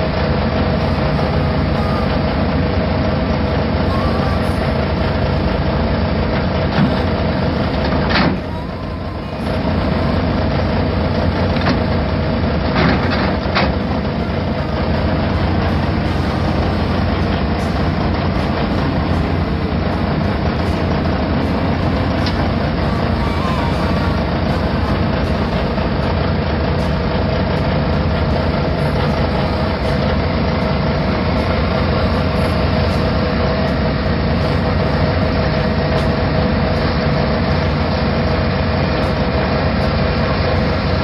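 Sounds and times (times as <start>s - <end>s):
loud mechanical rumble: 0.0s - 41.0s.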